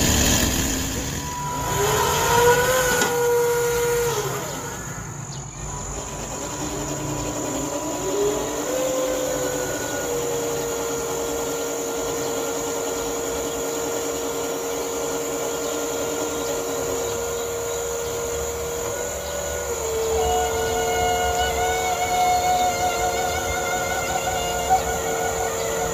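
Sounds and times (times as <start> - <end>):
crane motor whining: 0.0 - 25.9
thin high whine: 0.0 - 25.9.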